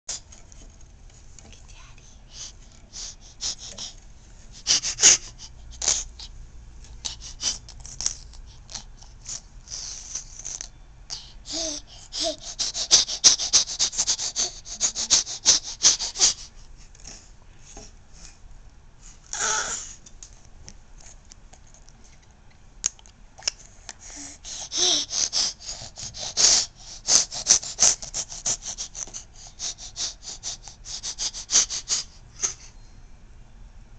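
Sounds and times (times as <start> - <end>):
baby squealing: 19.3 - 19.9.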